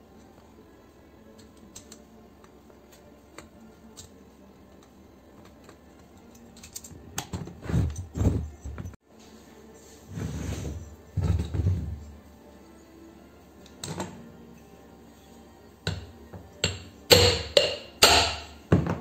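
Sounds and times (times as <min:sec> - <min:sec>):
screwdriver clicking and scraping: 0:05.4 - 0:08.1
heavy thumps of metal unit: 0:15.9 - 0:19.0.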